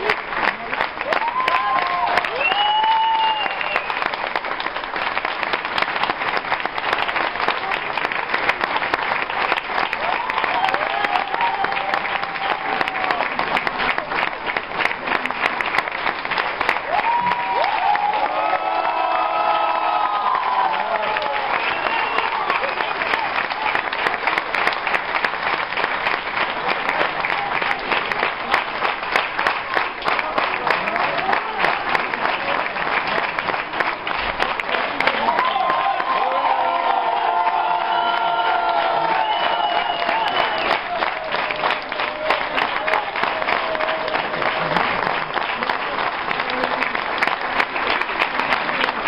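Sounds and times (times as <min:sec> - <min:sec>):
audience applauding: 0:00.0 - 0:49.0.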